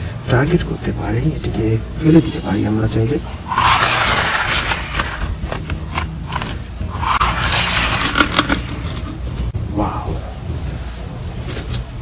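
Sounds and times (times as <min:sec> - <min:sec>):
plastic wheels scraping concrete: 0:03.5 - 0:09.3.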